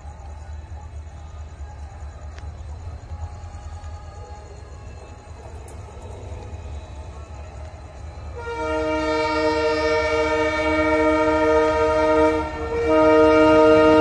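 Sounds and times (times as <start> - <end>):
locomotive rumble: 0.0 - 14.0
locomotive air horn blast: 8.4 - 14.0.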